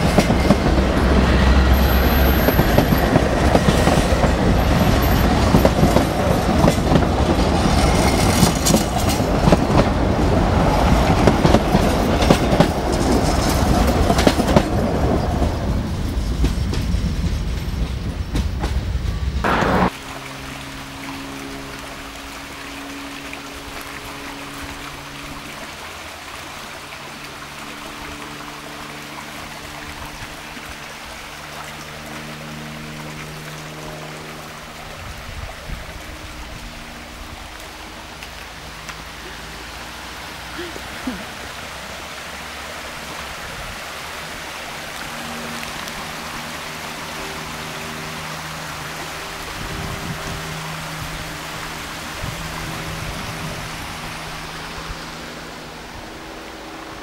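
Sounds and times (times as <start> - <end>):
stream rushing over stones: 0.0 - 16.4, 19.4 - 57.0.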